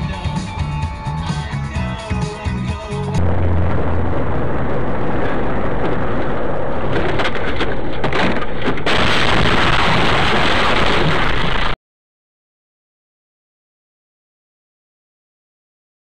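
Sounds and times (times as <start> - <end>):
vehicle road noise: 3.2 - 8.8
vehicle collision: 3.2 - 11.8.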